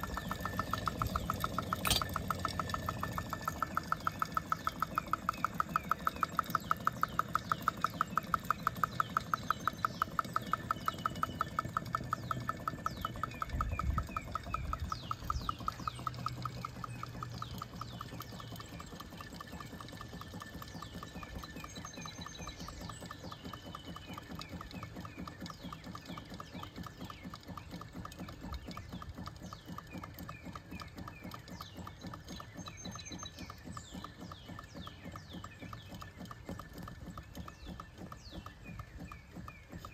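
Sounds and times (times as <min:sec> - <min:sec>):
engine linkage ticking: 0:00.0 - 0:39.9.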